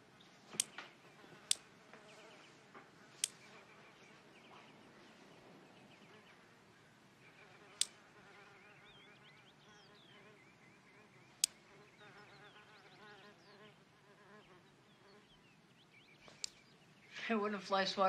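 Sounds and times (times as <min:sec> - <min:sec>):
housefly buzzing: 0:07.4 - 0:10.4, 0:11.5 - 0:15.3.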